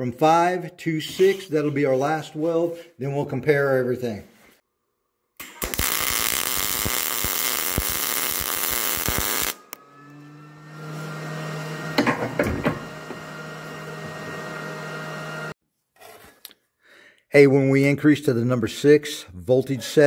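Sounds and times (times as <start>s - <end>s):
welding arc hissing and clicking: 5.4s - 9.6s.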